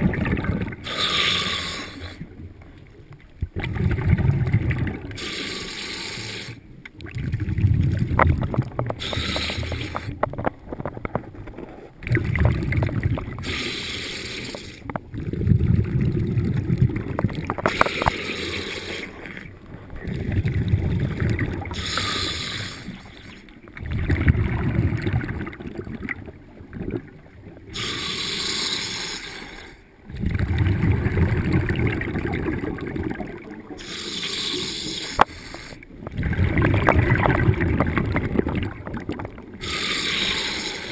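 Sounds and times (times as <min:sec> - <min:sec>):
bubbling exhaled air: 0:00.0 - 0:02.5, 0:03.5 - 0:10.5, 0:11.1 - 0:40.9
regulator hissing inhale: 0:00.8 - 0:02.2, 0:05.2 - 0:06.6, 0:09.0 - 0:10.1, 0:13.4 - 0:14.9, 0:17.7 - 0:19.3, 0:21.8 - 0:23.4, 0:27.8 - 0:29.8, 0:33.8 - 0:35.8, 0:39.6 - 0:40.9.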